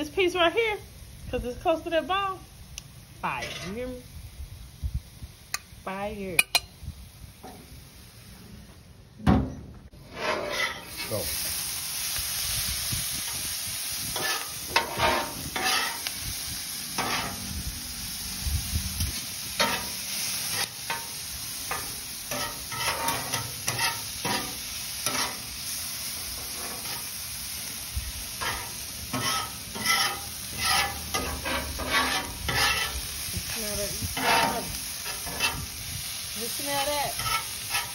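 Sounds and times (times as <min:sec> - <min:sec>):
vegetables sizzling on griddle: 0:00.0 - 0:09.1, 0:09.9 - 0:37.9
metal spatulas scraping: 0:03.2 - 0:04.0, 0:10.0 - 0:11.2, 0:14.2 - 0:16.1, 0:17.0 - 0:17.5, 0:19.6 - 0:21.1, 0:21.7 - 0:25.4, 0:26.4 - 0:27.1, 0:28.4 - 0:33.0, 0:34.1 - 0:35.7, 0:37.1 - 0:37.9.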